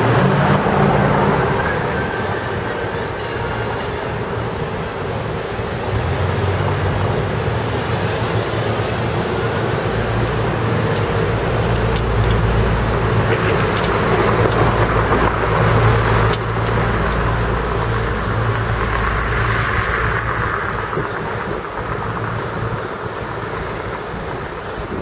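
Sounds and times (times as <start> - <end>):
cars passing with low rumble: 0.0 - 25.0
faint clicks: 13.2 - 14.9.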